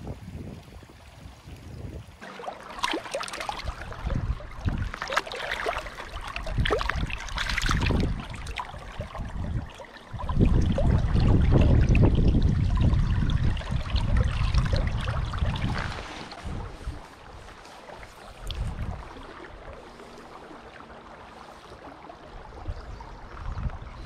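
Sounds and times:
hand dipping into water: 2.2 - 12.8
splashing in stream water: 2.2 - 22.6.

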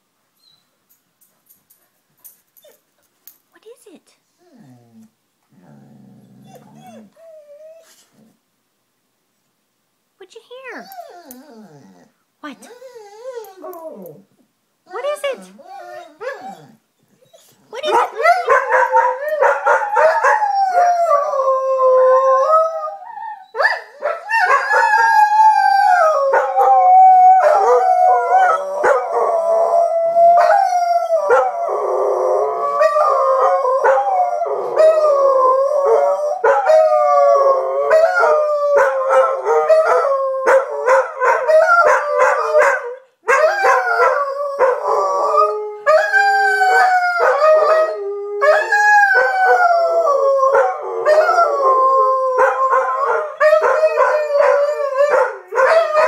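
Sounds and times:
dogs howling: 14.9 - 56.0.

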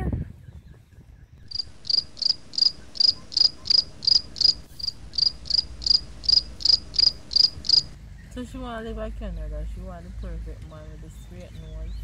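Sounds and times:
cricket chirping: 1.5 - 8.0.

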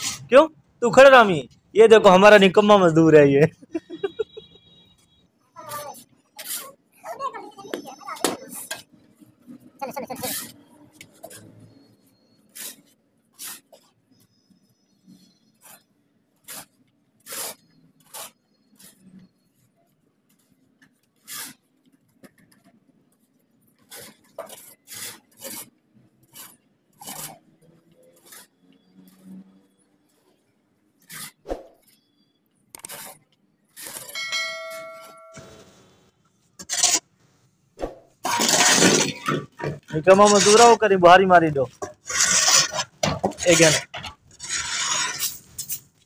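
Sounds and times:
ringing metallic clang: 34.1 - 35.8
shovels scraping cement mix: 36.6 - 37.0, 38.2 - 46.0.

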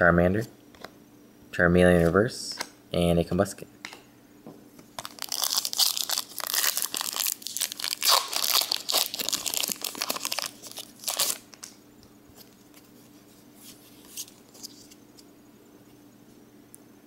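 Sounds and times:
foil wrapper tearing and crinkling: 5.0 - 11.8.

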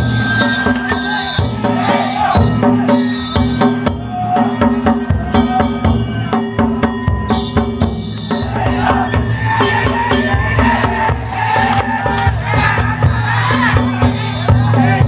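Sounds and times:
drums beaten in fast rhythm: 0.0 - 15.0
ringing hand gongs: 2.9 - 8.6.

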